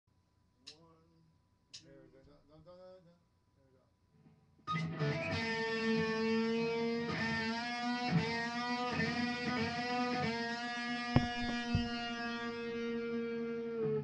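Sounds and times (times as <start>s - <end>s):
sharp knocks: 11.2s - 12.2s.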